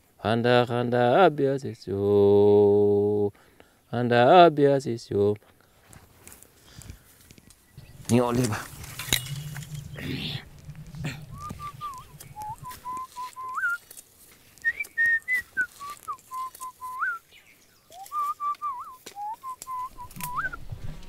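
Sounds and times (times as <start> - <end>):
person whistling a tune: 11.2 - 13.8, 14.6 - 17.2, 17.9 - 20.7.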